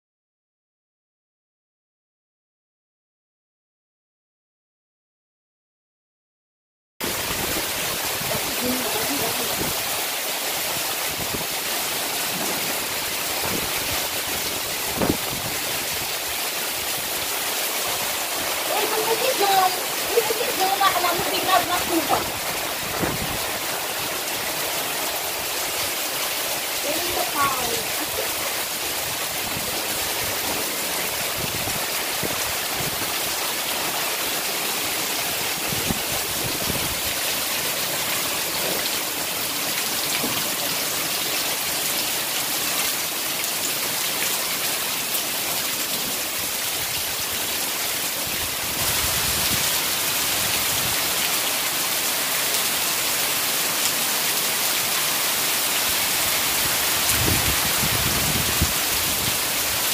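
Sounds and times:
heavy rain on roof: 7.0 - 59.9.

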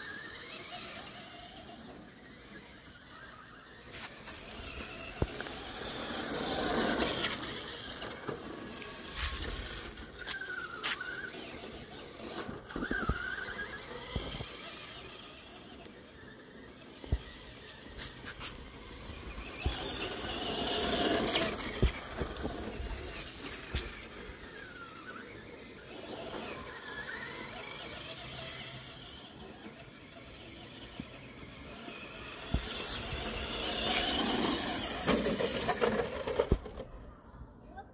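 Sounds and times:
electric toy car motor whine: 0.0 - 36.9
toy car hitting wall: 32.4 - 36.9.

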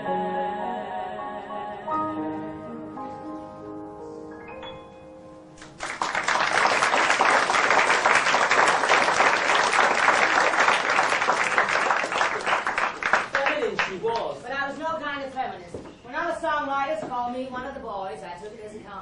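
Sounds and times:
audience applause: 5.7 - 14.3.

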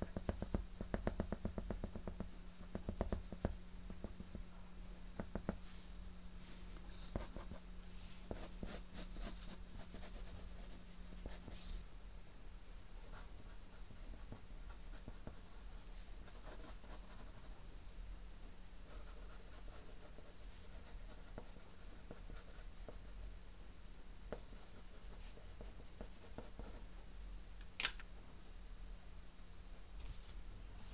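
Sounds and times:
pencil scratching on paper: 6.9 - 11.8, 13.0 - 17.6, 18.9 - 23.2.

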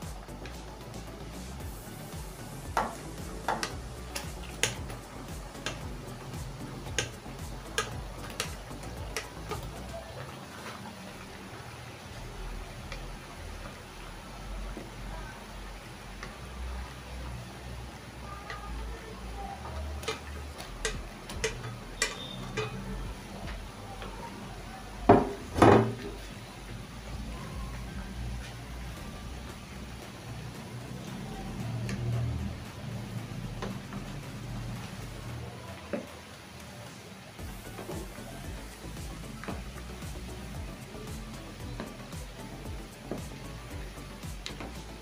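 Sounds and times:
soft background music: 0.0 - 45.0
sharp clicks and ticks: 2.6 - 9.9, 19.6 - 24.2.

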